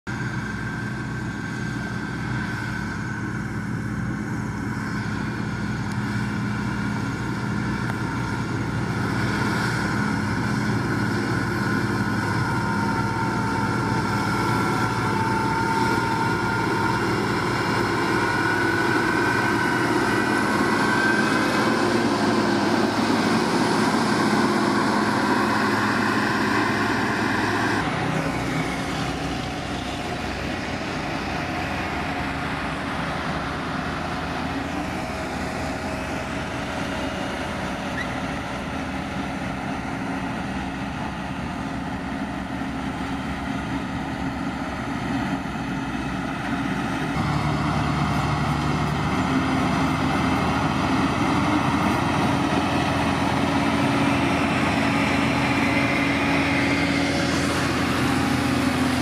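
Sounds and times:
high whine: 0.1s - 38.8s
diesel engine running under load: 0.1s - 59.0s.

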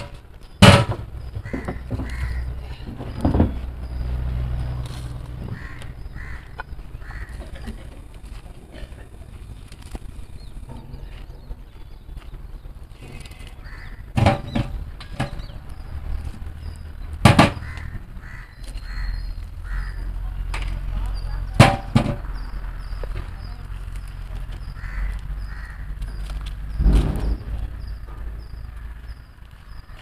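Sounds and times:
crows cawing: 1.4s - 2.8s, 5.4s - 7.8s, 13.6s - 14.2s, 17.5s - 20.2s, 24.6s - 26.2s
metal cooking vessels knocking: 21.5s - 22.4s.

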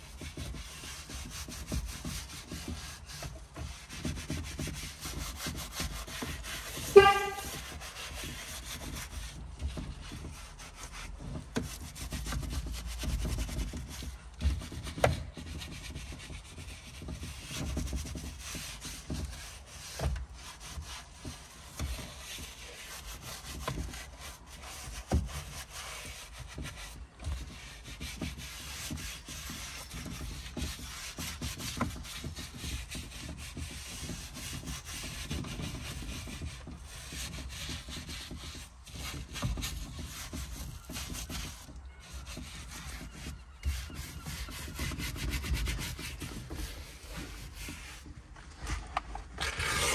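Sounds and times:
cloth wiping steering wheel: 0.0s - 49.9s
high squeak: 6.9s - 7.8s.

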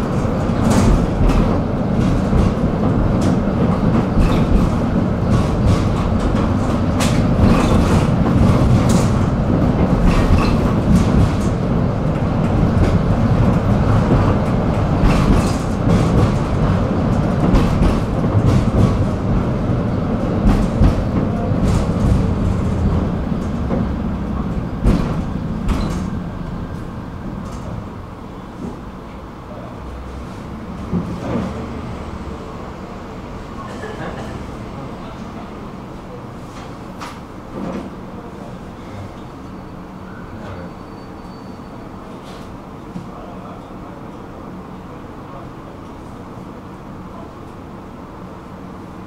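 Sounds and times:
wheels clicking over rail joints: 0.0s - 27.9s
tram wheels rumbling on rails: 0.0s - 49.0s.

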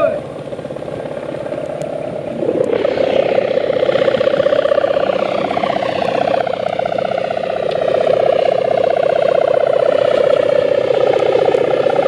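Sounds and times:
kite hummer fluttering drone: 0.0s - 12.0s.

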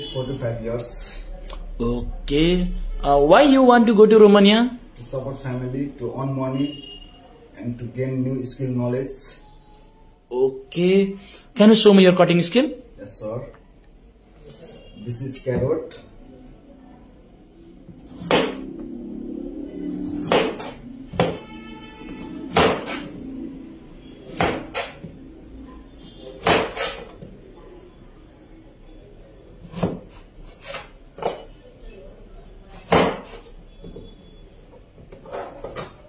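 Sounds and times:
knife chopping carrot on board: 18.0s - 18.6s, 20.1s - 21.4s, 22.3s - 23.1s, 24.3s - 25.1s, 26.4s - 27.2s, 29.6s - 31.4s.

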